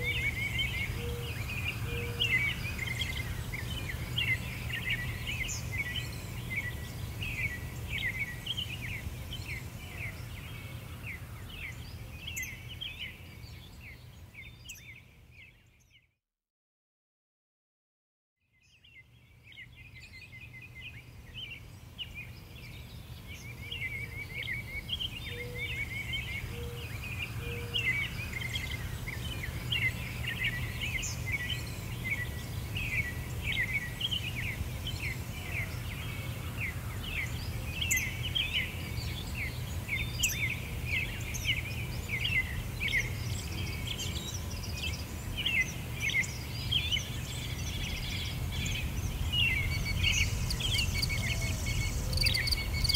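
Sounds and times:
small birds chirping: 0.0 - 16.1, 18.6 - 52.9.

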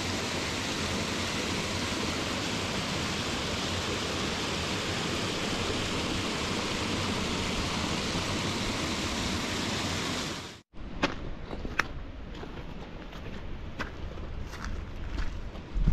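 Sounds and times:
mountain stream rushing: 0.0 - 10.6.

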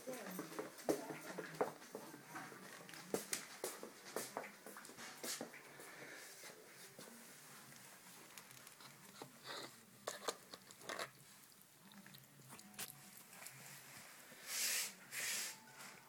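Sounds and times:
cat chewing food: 7.7 - 13.6.

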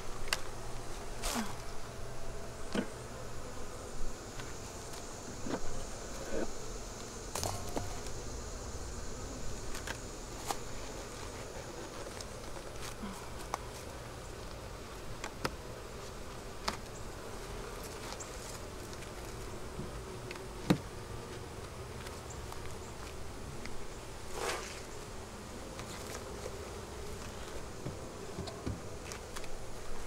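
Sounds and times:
honeybees buzzing: 0.0 - 30.0.

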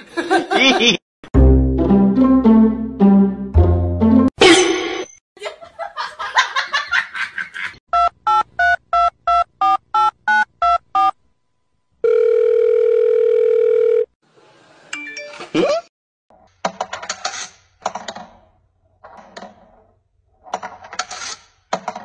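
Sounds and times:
steady electronic phone tone: 12.0 - 14.1.

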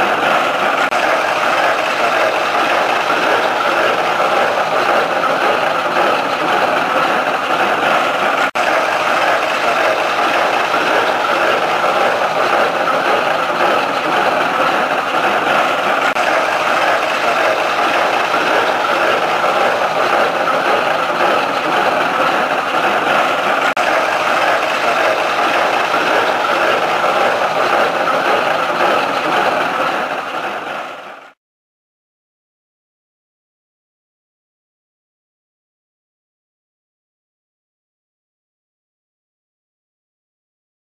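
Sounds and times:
tractor engine: 0.0 - 31.4
hay baler clattering: 0.3 - 30.5.

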